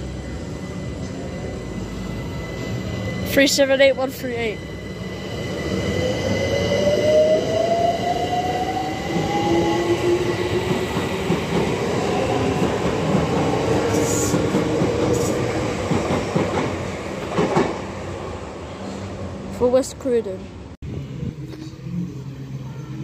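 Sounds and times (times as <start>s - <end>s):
train wheels rumbling on rails: 0.0s - 18.1s.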